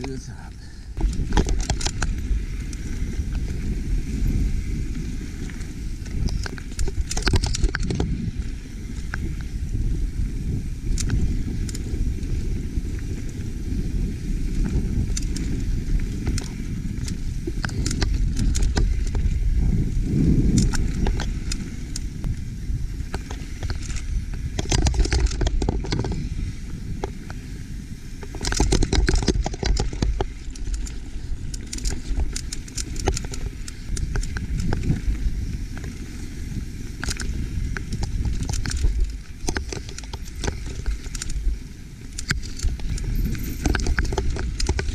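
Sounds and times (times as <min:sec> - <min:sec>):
bike clicks and rattles: 0:00.0 - 0:44.9
wind on microphone: 0:00.0 - 0:44.9.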